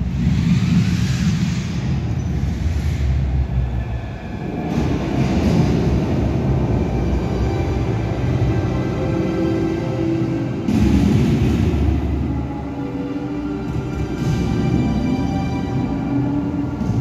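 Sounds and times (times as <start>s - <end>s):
deep rumbling sound effects: 0.0s - 17.0s.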